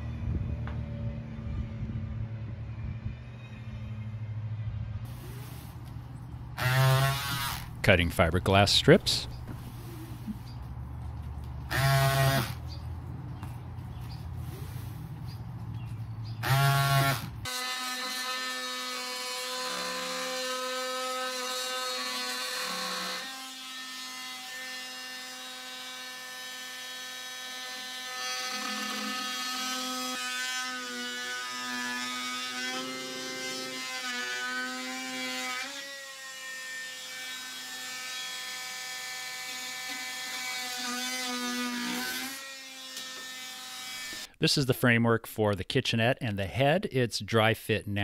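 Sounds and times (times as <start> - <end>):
oscillating tool cutting wood: 6.6 - 7.8, 11.7 - 12.9, 16.3 - 44.3.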